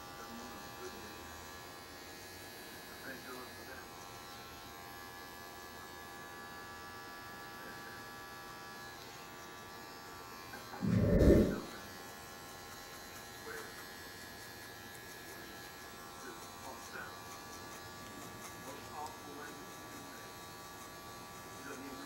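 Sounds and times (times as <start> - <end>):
loud low rumble: 10.8 - 11.7.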